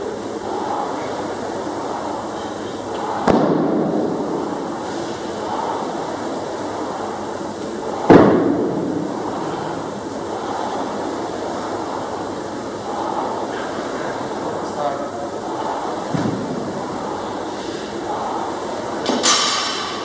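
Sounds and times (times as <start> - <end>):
steady rumbling background: 0.0 - 19.1
sharp echoing bangs: 3.2 - 4.5.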